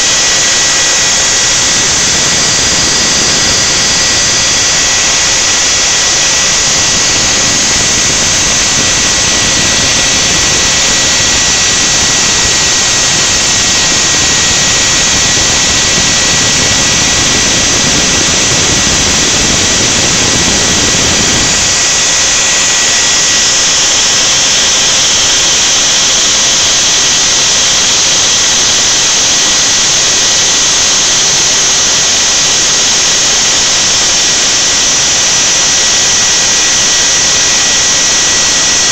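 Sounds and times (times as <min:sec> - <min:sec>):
spindle motor whining: 0:00.0 - 0:38.9
deep rumble: 0:00.8 - 0:24.7.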